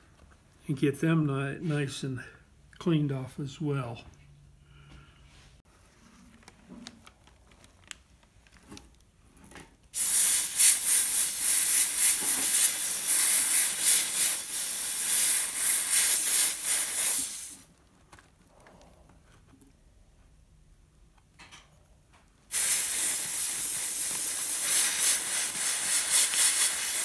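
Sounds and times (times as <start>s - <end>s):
sandblaster hissing: 10.0s - 17.6s, 22.5s - 27.0s.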